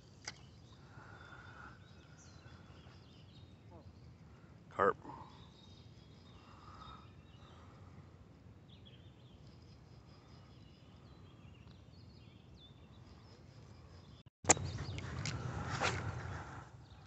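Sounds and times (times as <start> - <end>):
distant birds chirping: 0.0 - 17.0.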